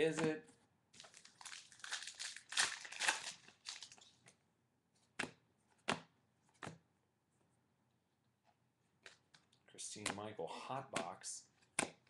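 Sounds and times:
foil wrapper crinkling: 0:01.0 - 0:04.2
trading cards tapping: 0:10.9 - 0:12.0.

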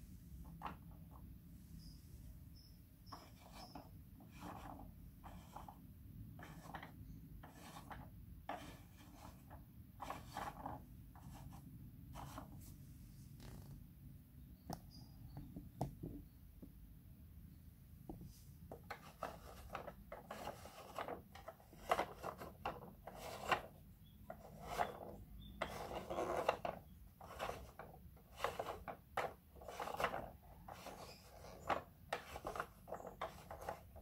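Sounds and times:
faint plastic scraping: 0:03.1 - 0:13.8, 0:18.1 - 0:34.0.

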